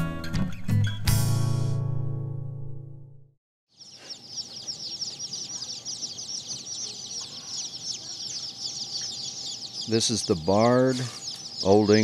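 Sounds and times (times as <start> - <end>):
chicks peeping: 3.7 - 12.0.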